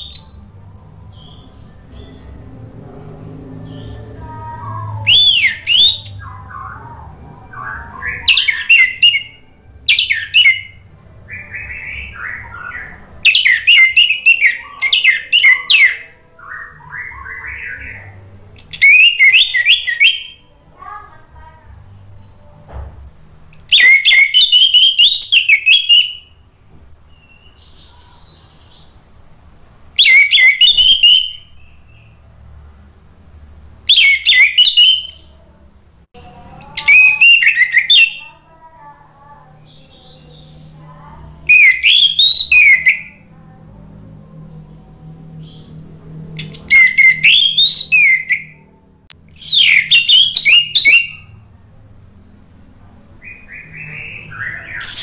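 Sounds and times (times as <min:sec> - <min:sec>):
soft low bird twittering: 0:00.0 - 0:20.5, 0:33.9 - 0:51.5
thrush warbling whistled song: 0:04.9 - 0:20.4, 0:23.7 - 0:26.4, 0:30.0 - 0:32.1, 0:33.9 - 0:35.4, 0:36.8 - 0:38.2, 0:41.5 - 0:43.3, 0:46.4 - 0:48.7, 0:49.3 - 0:51.4, 0:53.2 - 0:55.0.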